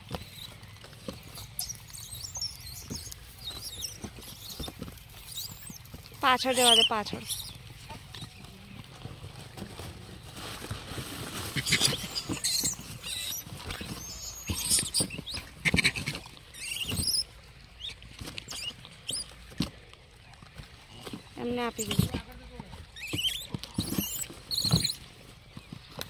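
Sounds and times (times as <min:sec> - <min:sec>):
cardboard box rustling: 0:02.9 - 0:17.0, 0:20.5 - 0:26.0.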